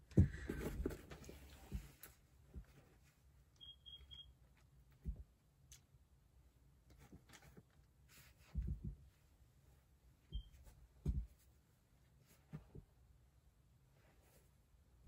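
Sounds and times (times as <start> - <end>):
soft thumps and rustles: 0.0 - 3.1, 7.1 - 9.2, 10.3 - 11.6, 12.2 - 12.9
faint high beeps: 3.6 - 4.4, 10.3 - 10.6.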